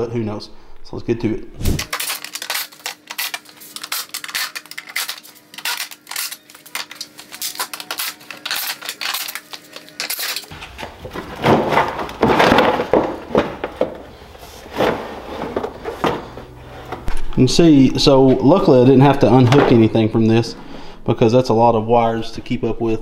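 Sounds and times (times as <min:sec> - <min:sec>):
plastic panel rustling and scraping: 0:10.0 - 0:17.2.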